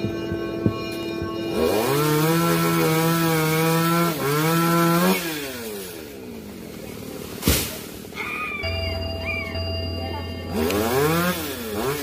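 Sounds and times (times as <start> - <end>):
chainsaw running at high revs: 1.5 - 6.2, 10.5 - 12.0.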